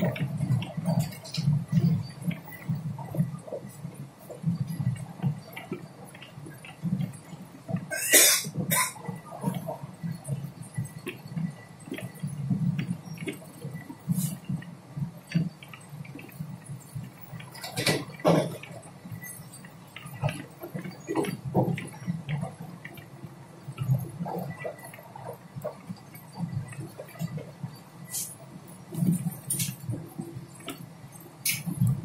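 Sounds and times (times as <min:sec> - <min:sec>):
train rumble inside coach: 0:00.0 - 0:32.0.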